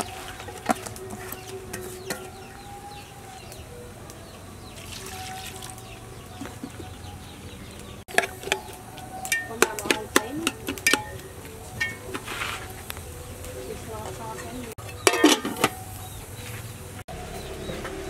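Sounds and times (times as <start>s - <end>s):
birds calling: 0.0s - 18.0s
chickens clucking: 6.2s - 16.6s
metallic clinks against pot: 8.1s - 12.2s, 14.8s - 15.8s.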